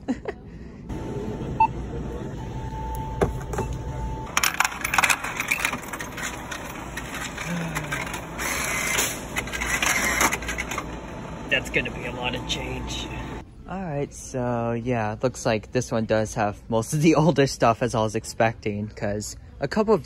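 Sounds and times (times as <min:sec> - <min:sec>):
coins clicking and rattling: 0:04.3 - 0:10.9.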